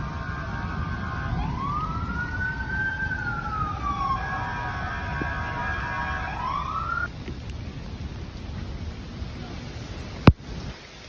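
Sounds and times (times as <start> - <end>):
emergency siren wailing: 0.0 - 7.1
steady siren tone: 0.0 - 7.1
low rumble: 0.0 - 9.3.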